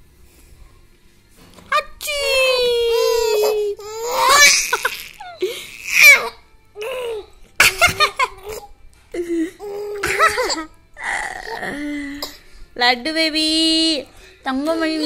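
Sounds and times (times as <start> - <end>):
baby laughing and squealing: 2.9 - 7.3.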